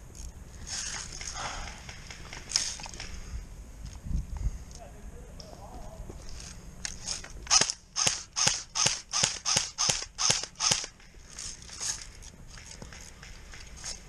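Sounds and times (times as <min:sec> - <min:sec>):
airsoft rifle shots: 0:07.5 - 0:11.2.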